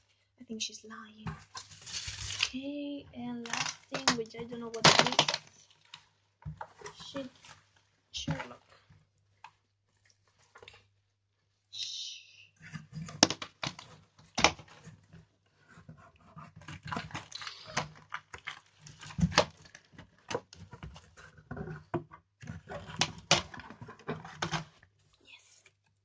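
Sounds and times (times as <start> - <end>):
cardboard scraping: 1.3 - 2.6, 12.6 - 25.0
plastic wrap crinkling: 1.5 - 2.7, 16.9 - 20.2.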